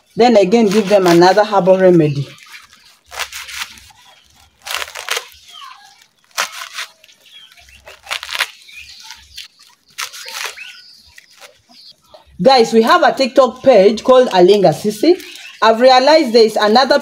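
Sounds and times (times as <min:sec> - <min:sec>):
leafy rustling: 0:00.0 - 0:17.0.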